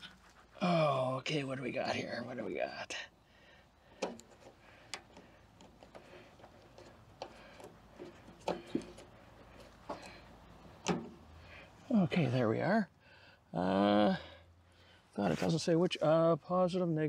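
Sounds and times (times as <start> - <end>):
light plastic clicks and knocks: 4.0 - 10.2.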